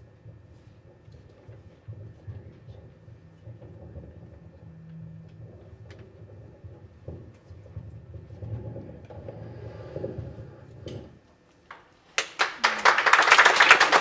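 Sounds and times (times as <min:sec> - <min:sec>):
low steady hum: 0:00.0 - 0:13.0
audience applause: 0:12.2 - 0:14.0.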